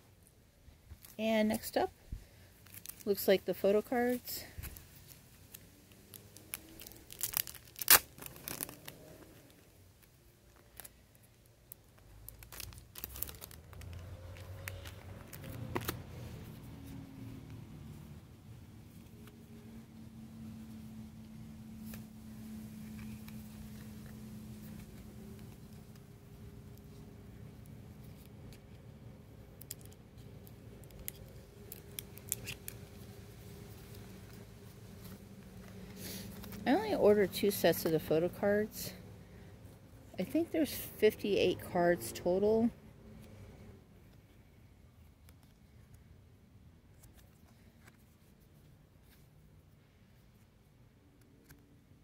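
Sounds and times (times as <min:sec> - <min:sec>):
plastic crinkling: 0:02.5 - 0:03.3, 0:04.1 - 0:16.1, 0:29.6 - 0:37.0
plastic wrap ripping: 0:02.6 - 0:03.1, 0:04.6 - 0:09.6, 0:11.7 - 0:16.0, 0:30.8 - 0:35.2
paper rustling: 0:04.6 - 0:09.5
crisp card snaps: 0:05.5 - 0:09.0, 0:30.8 - 0:32.8.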